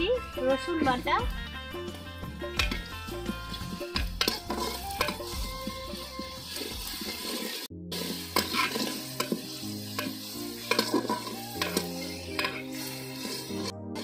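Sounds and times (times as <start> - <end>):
oil sizzling: 1.4 - 14.0
metal spatula scraping a pot: 2.5 - 14.0.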